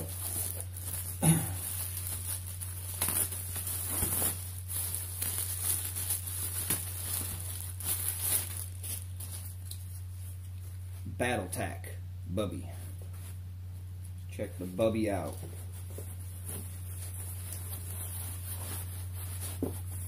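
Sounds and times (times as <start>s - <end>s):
plastic bag crinkling: 0.0s - 10.8s, 15.6s - 20.0s
steady low hum: 0.0s - 20.0s.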